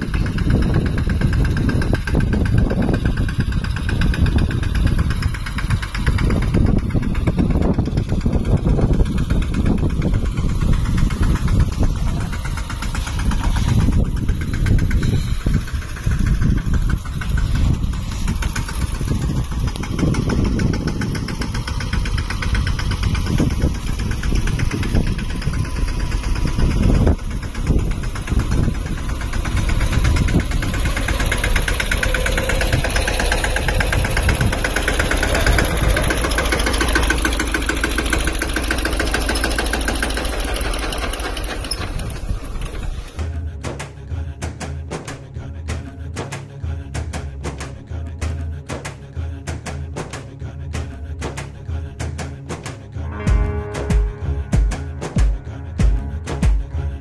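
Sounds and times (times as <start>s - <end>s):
tractor diesel engine running: 0.0s - 57.0s.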